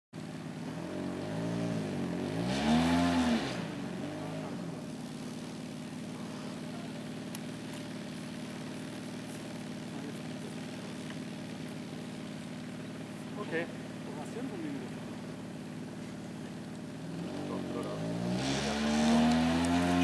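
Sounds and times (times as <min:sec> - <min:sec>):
model plane engine revving: 0:17.2 - 0:20.0.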